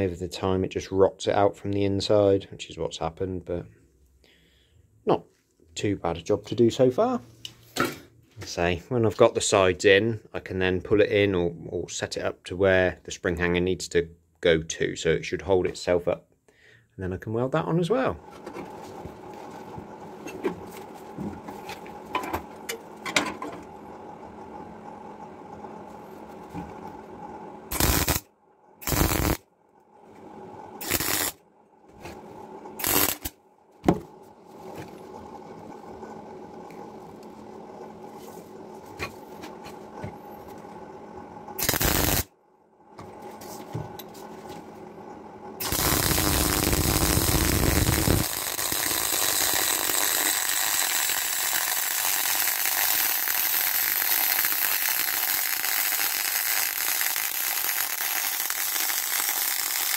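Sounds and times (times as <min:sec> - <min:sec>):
welder arc crackling: 0:27.7 - 0:29.4, 0:30.8 - 0:31.4, 0:32.7 - 0:33.4, 0:41.6 - 0:42.3, 0:45.6 - 0:59.9.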